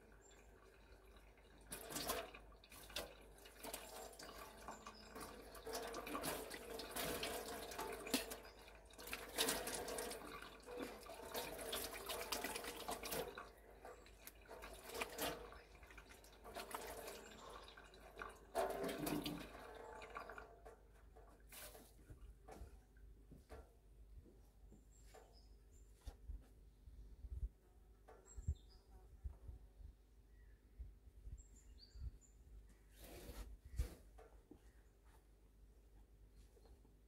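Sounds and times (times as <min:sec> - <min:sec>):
tap water splashing into sink: 0:00.2 - 0:21.8.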